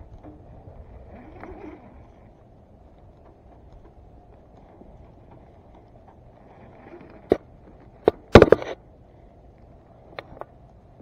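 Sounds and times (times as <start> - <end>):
microphone handling clicks and knocks: 4.6 - 8.8.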